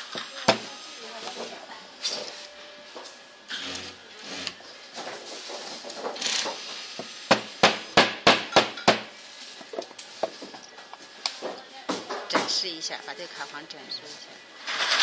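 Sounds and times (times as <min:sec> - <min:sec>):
handling and scraping of parts: 0:01.3 - 0:07.2, 0:14.0 - 0:15.0.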